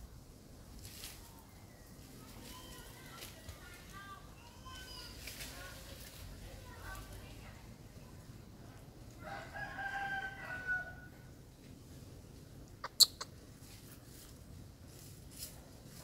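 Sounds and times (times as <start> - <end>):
rooster crowing: 9.2 - 11.2.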